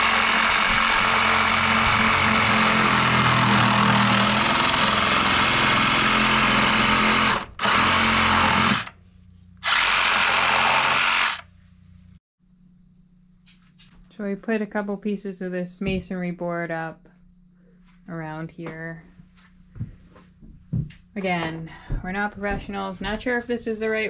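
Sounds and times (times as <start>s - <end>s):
reciprocating saw cutting pipe: 0.0s - 9.0s, 9.6s - 11.5s.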